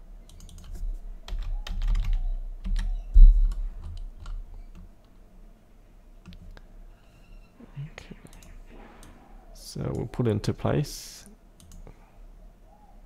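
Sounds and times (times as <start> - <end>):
keyboard typing: 0.3 - 4.8.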